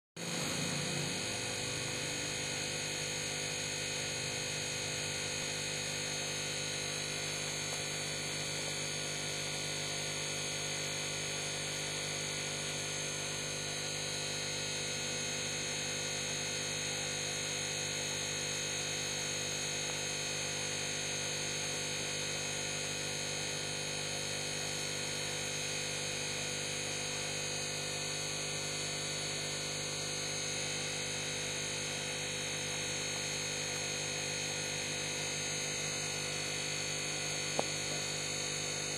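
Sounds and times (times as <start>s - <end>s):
electrical hum: 33.0s - 38.9s.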